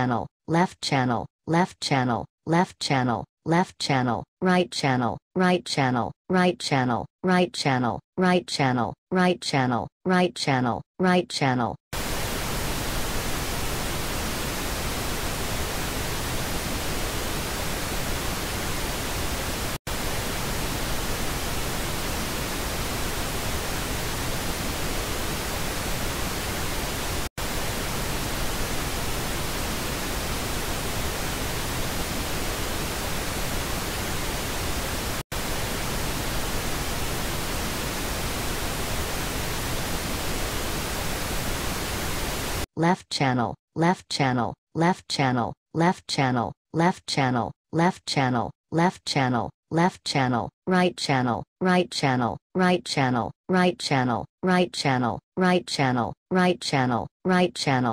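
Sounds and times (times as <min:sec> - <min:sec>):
pink noise hiss: 0:12.0 - 0:42.7.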